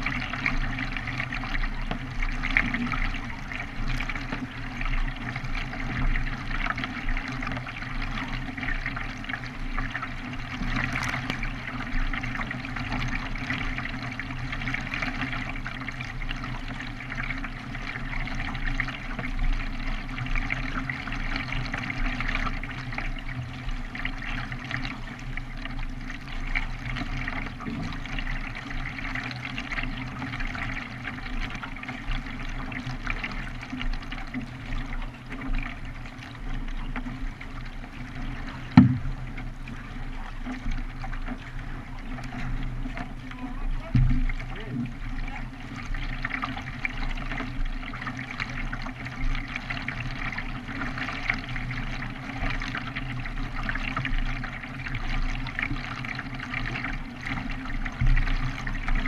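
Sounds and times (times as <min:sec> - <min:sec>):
water splashing against kayak: 0:00.0 - 0:59.0.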